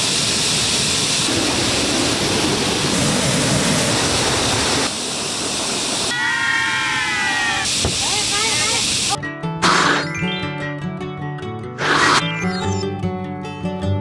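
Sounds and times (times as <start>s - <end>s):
loud rushing noise: 0.0s - 6.1s
music line: 9.2s - 14.0s.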